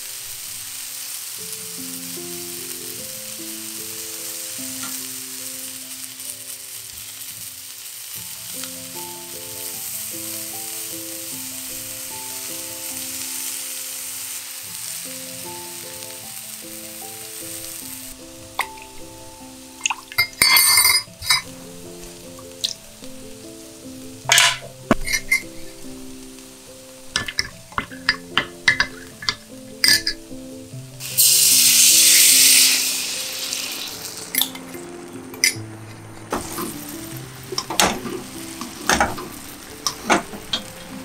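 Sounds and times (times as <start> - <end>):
patties sizzling in frying pan: 0.0 - 41.0
spoon clinking against glass cup: 19.8 - 21.5, 24.3 - 25.5, 27.2 - 30.2.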